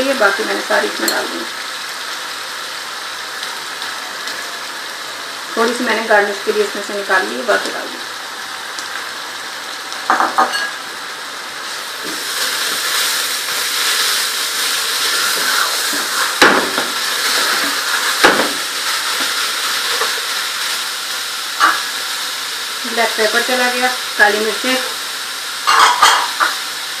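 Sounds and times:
carrots sizzling in a pot: 0.0 - 27.0.

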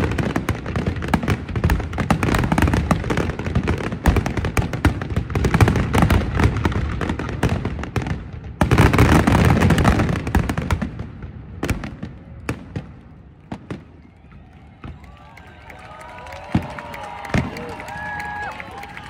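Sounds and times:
fireworks bangs and crackling: 0.0 - 19.0.

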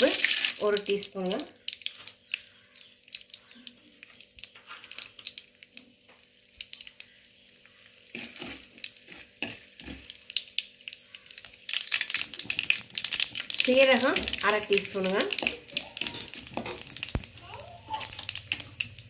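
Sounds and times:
seeds crackling and popping in oil: 0.0 - 19.0
metal spoon stirring against pan: 7.6 - 10.4, 11.1 - 19.0.

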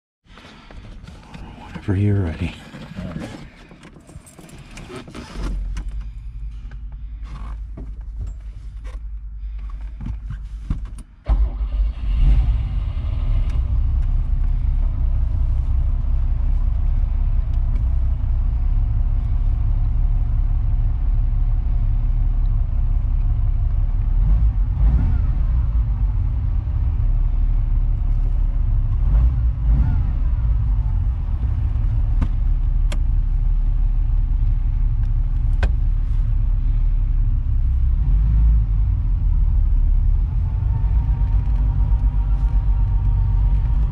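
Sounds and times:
car engine cranking: 1.8 - 19.5
engine revving: 11.3 - 21.7, 23.0 - 27.1, 28.9 - 32.2
car engine idling: 11.4 - 43.9.

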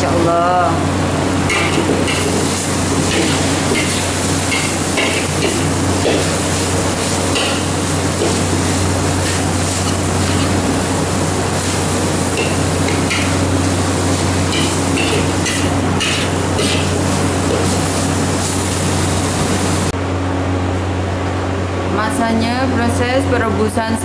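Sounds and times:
steady hum and hiss: 0.0 - 24.0
metal spatula scraping wok: 14.1 - 17.8.

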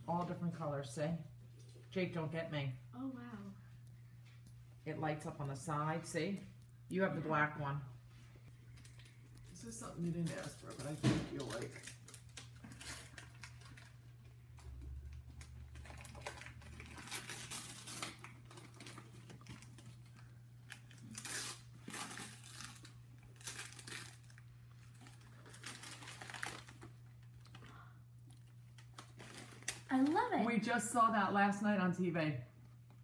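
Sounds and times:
paper crumpling and tearing: 15.4 - 27.6, 28.8 - 30.2.

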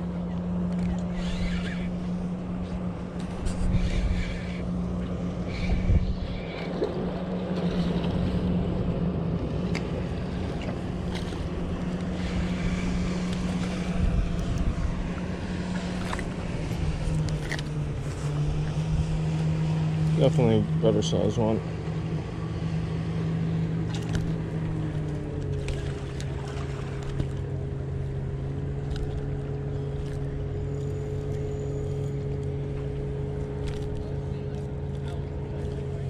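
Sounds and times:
motorboat engine droning: 0.0 - 36.0
wind rumbling on microphone: 0.9 - 20.2.

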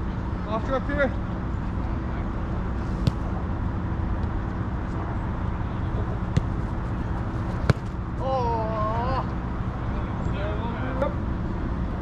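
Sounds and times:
low outdoor hum: 0.0 - 12.0
soccer ball being kicked: 3.0 - 3.4, 6.2 - 8.1.

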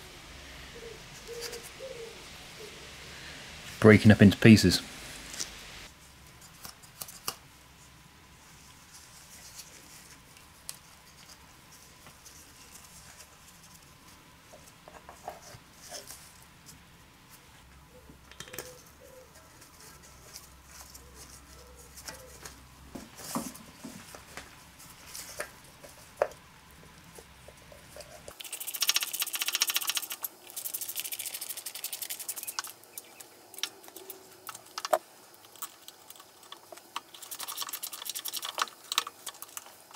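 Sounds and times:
rapid ratchet clicking: 28.3 - 32.7.

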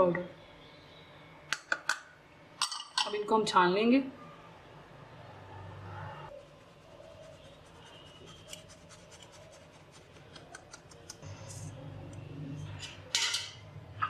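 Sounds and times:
sieve scratching and ticking: 6.3 - 11.8.

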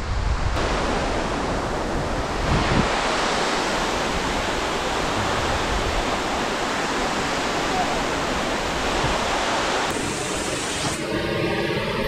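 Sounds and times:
wind buffeting microphone: 0.0 - 10.1
waterfall rushing: 0.6 - 12.0.

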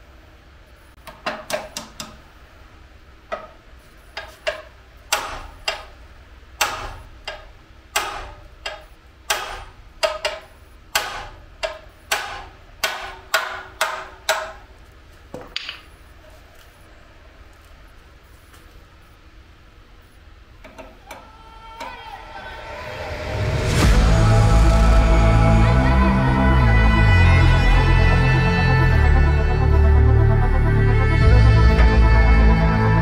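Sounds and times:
hammer clanking on metal wrench: 4.2 - 6.0, 6.6 - 14.7.

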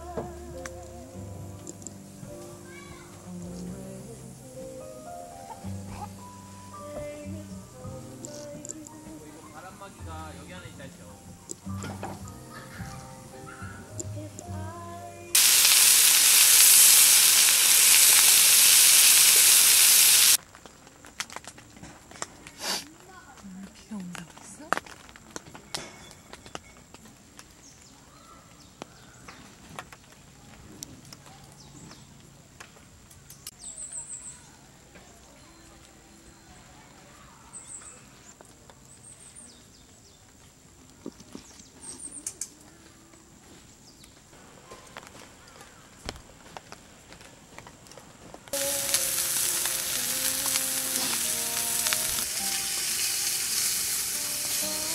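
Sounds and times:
steak sizzling in skillet: 15.3 - 20.4, 48.5 - 54.9
water dripping: 15.4 - 20.4, 48.6 - 54.3.

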